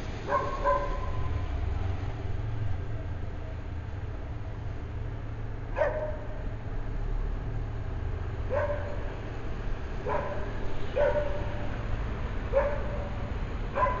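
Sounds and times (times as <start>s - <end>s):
small dog barking: 0.3s - 1.3s, 5.8s - 6.4s, 8.5s - 9.1s, 10.0s - 11.7s, 12.5s - 14.0s.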